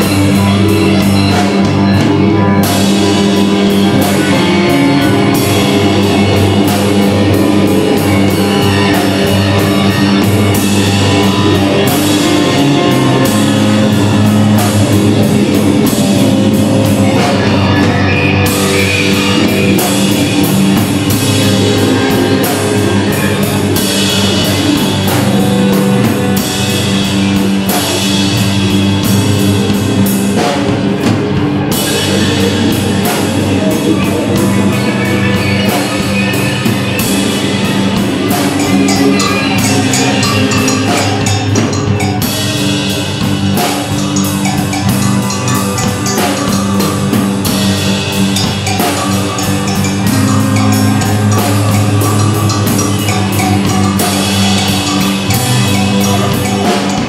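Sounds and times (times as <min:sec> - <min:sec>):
drum kit playing rapid hits: 0:00.0 - 0:57.0
electric guitar: 0:00.0 - 0:57.0.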